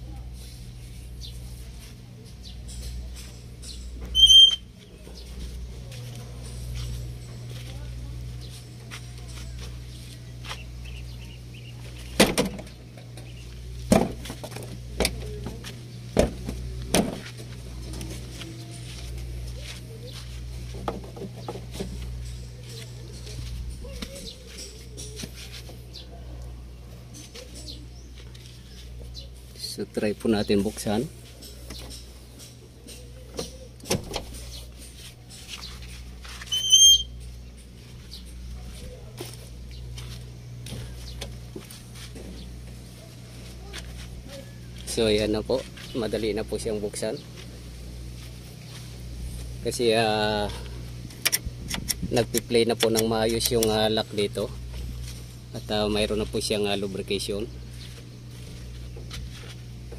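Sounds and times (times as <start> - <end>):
steady low hum: 0.0 - 59.9
high whistling chirp: 4.1 - 4.7
metal panel clunking shut: 12.1 - 12.7.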